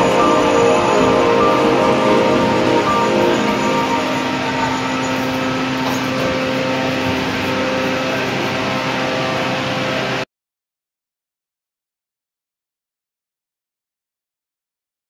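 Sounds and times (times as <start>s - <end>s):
factory machinery humming: 0.0s - 10.2s.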